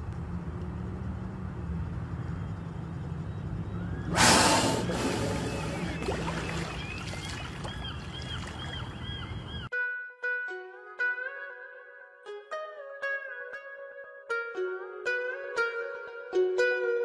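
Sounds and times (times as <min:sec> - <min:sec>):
whale blowing breathy whoosh: 0:04.1 - 0:06.0.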